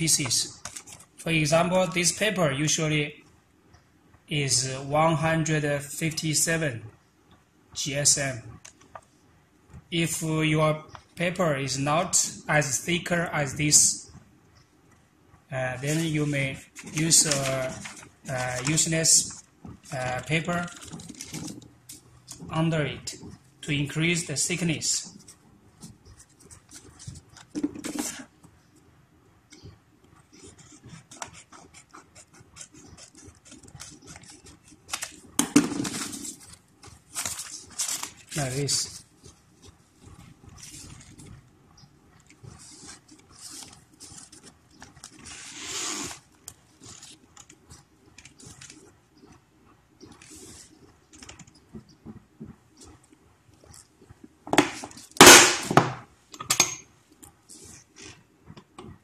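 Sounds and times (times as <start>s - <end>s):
paper rustling: 0.2s - 1.2s, 15.8s - 21.7s, 32.5s - 41.3s, 42.2s - 48.9s
cutter blade crunching through paper: 16.8s - 18.9s, 42.6s - 47.6s
scissors snipping paper: 16.8s - 20.0s, 30.5s - 35.2s, 42.2s - 46.2s, 46.8s - 47.6s, 48.2s - 48.8s.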